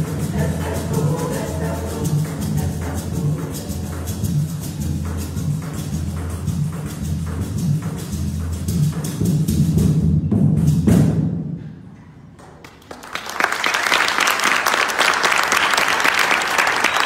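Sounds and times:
choir singing held chord: 0.0 - 4.0
percussion beats: 0.0 - 11.9
audience applauding: 12.4 - 17.0.

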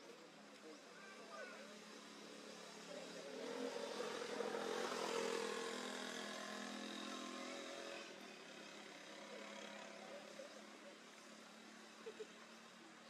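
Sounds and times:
vehicle engine passing by: 2.1 - 10.4.

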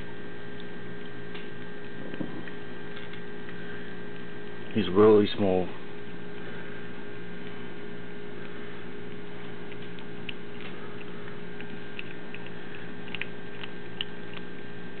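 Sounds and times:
steady electrical hum: 0.0 - 15.0
teeth and food clicking on metal bowl: 8.4 - 15.0.

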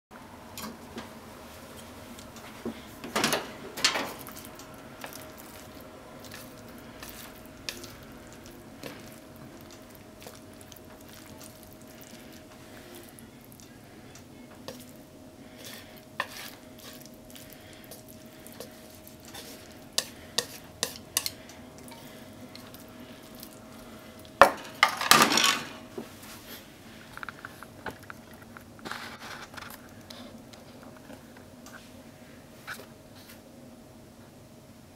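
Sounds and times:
chopsticks tapping on pan and bowl: 19.3 - 22.7.

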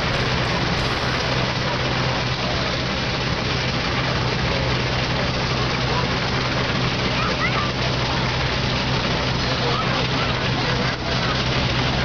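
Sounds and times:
steam traction engine running: 0.0 - 12.0.

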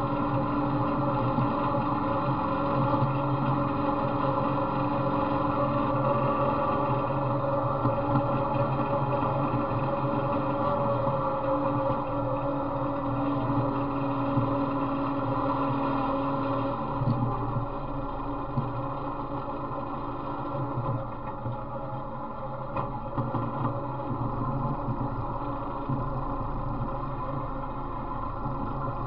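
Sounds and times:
riding mower engine running: 0.0 - 29.0.

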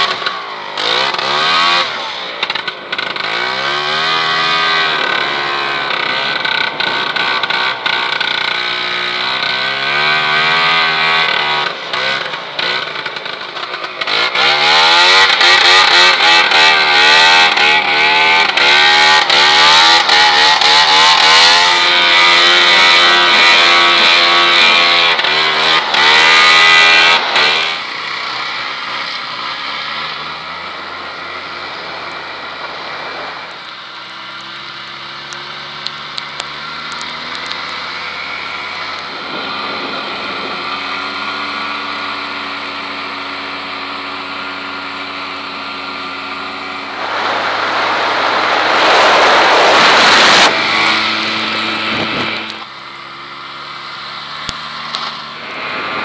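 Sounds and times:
second snowmobile engine: 0.0 - 56.0
snowmobile engine: 0.0 - 56.0
rush of wind: 39.0 - 41.1, 46.2 - 52.6.

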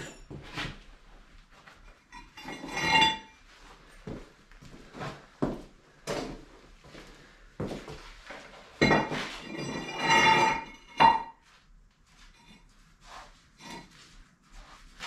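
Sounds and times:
ringing metal scrape: 2.1 - 3.4, 9.0 - 11.4, 13.6 - 14.0
steel plate scraping on concrete: 2.2 - 3.3, 9.1 - 11.2.

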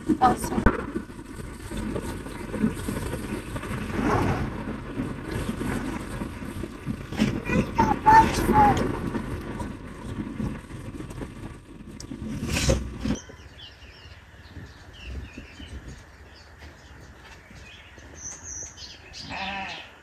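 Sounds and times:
wind rumbling on microphone: 0.0 - 19.7
small birds chirping: 11.9 - 20.0.

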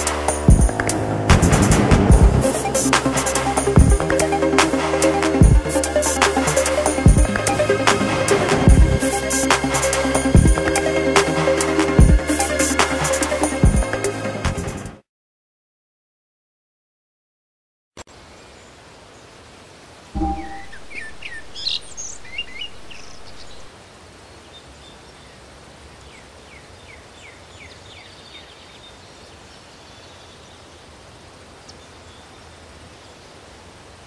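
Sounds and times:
background hiss: 0.0 - 13.6, 18.0 - 34.0
low rumble: 0.5 - 2.7
birds chirping: 20.2 - 23.7.

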